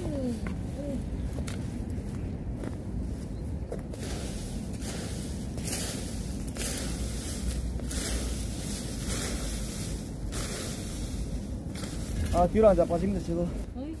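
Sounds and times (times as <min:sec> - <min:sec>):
rake sweeping dry leaves: 0:03.8 - 0:14.0.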